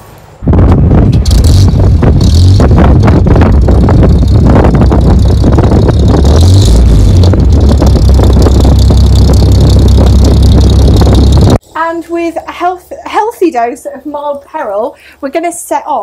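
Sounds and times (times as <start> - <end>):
deep engine exhaust note: 0.4 - 11.6.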